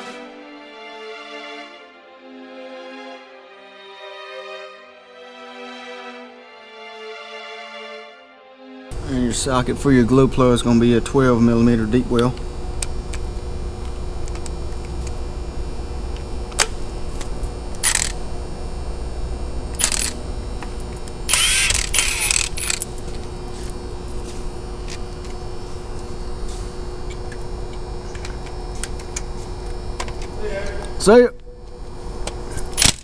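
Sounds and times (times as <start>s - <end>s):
steady low hum: 8.9s - 33.0s
sharp click: 17.8s - 18.2s, 32.6s - 33.0s.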